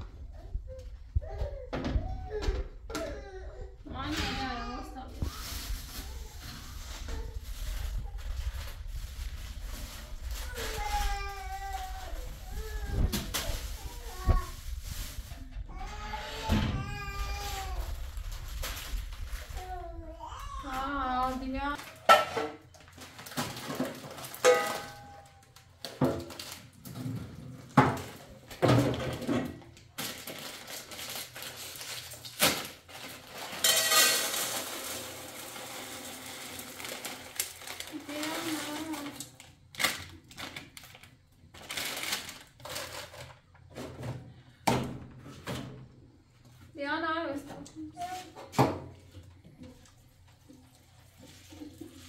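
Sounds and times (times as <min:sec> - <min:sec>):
pan and dishes clattering: 0:21.8 - 0:22.7, 0:23.3 - 0:25.3, 0:33.5 - 0:35.1
grains poured into metal pan: 0:33.3 - 0:39.0.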